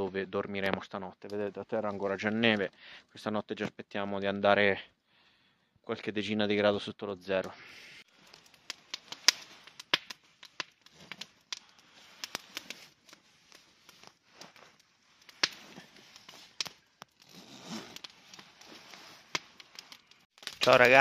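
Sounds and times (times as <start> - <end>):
campfire crackling and popping: 0.0 - 3.1, 7.3 - 21.0.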